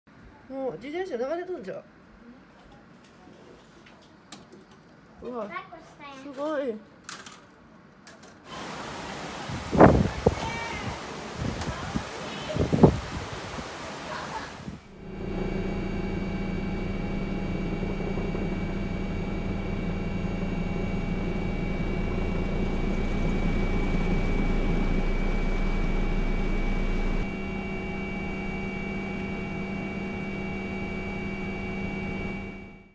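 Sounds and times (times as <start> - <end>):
helicopter engine and rotors: 14.9 - 32.9.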